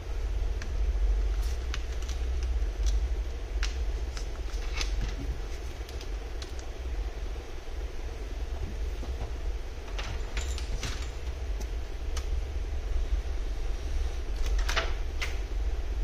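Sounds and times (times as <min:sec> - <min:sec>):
steady low hum: 0:00.0 - 0:16.0
small clicks and crackles: 0:01.3 - 0:06.8.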